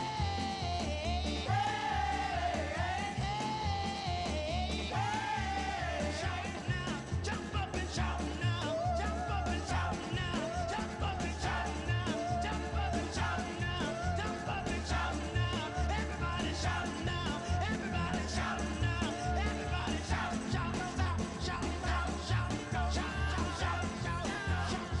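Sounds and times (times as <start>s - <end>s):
upbeat rock song with singer: 0.0s - 25.0s.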